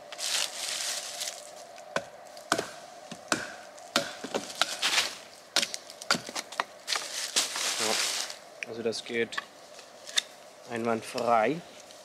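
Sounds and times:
knife chopping wood: 2.0s - 4.9s.

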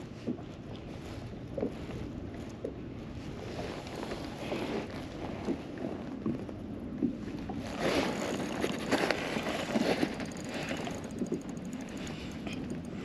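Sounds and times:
water splashing and sloshing: 0.0s - 13.0s
fishing reel reeling in: 8.4s - 12.9s.

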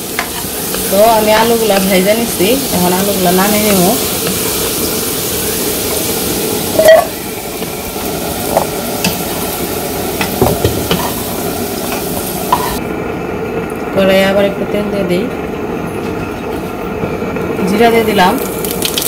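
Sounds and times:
potatoes sizzling in hot oil: 0.0s - 12.8s, 17.5s - 19.0s
spoon scraping and knocking pan: 0.0s - 12.8s.

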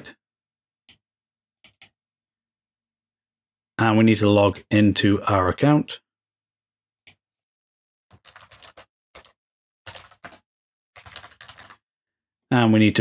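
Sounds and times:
computer keyboard typing: 1.6s - 2.0s, 8.1s - 11.8s.

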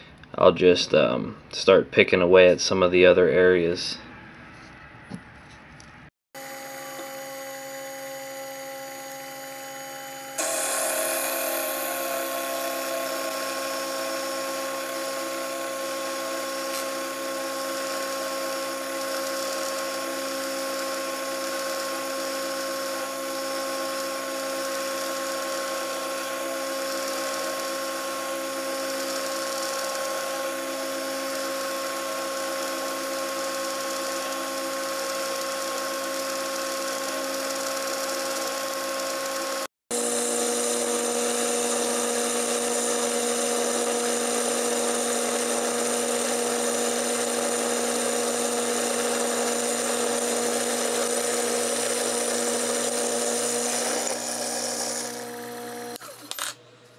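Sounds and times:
milling machine spindle whine: 6.4s - 56.5s
hiss of metal cutting: 10.4s - 17.0s.

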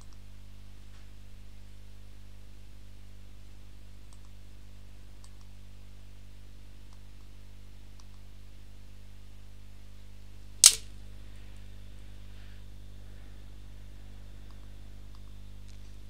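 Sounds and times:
low electrical hum: 0.0s - 16.0s
computer mouse clicks: 4.1s - 4.4s, 5.2s - 5.5s, 8.0s - 8.2s
loud sharp snap: 10.6s - 10.9s.

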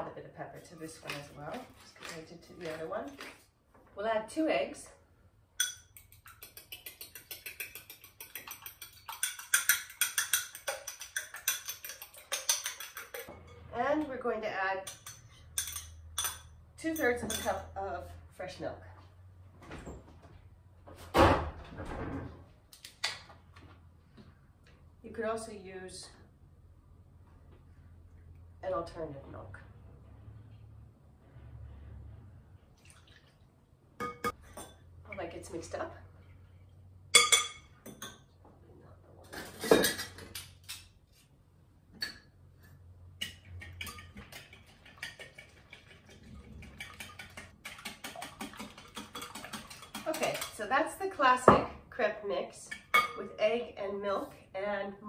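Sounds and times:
batter beaten in a glass bowl: 5.6s - 13.3s, 43.2s - 50.6s.

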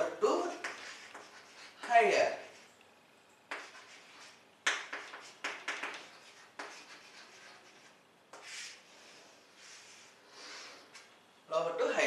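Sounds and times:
scratchy handwriting strokes: 0.5s - 2.6s, 3.5s - 8.9s.

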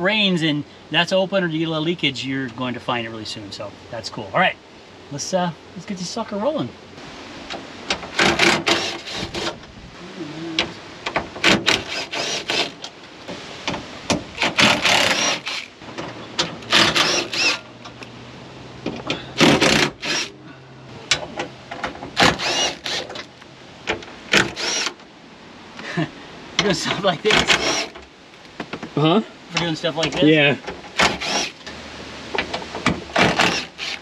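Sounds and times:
power driver whining: 14.4s - 18.1s, 22.1s - 23.3s, 23.9s - 25.0s, 31.0s - 31.7s.

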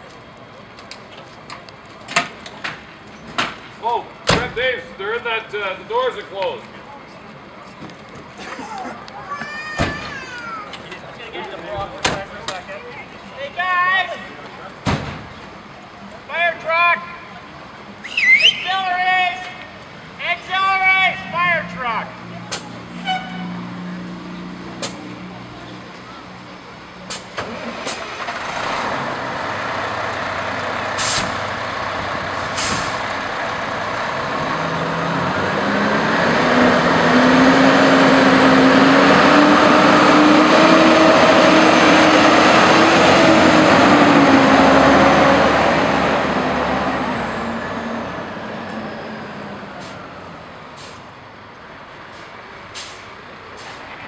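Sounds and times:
diesel truck engine driving past: 21.2s - 54.0s
air brakes hissing: 31.0s - 31.4s, 32.4s - 33.0s, 50.7s - 51.2s, 52.1s - 53.8s.

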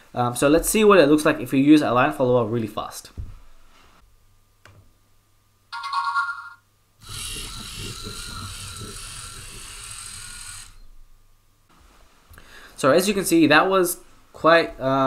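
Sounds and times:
robot motors whirring: 7.0s - 10.9s.

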